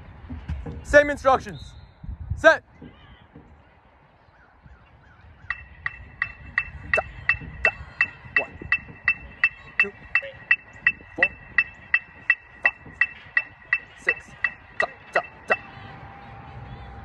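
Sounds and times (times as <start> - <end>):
metronome clicking: 5.5 - 15.7.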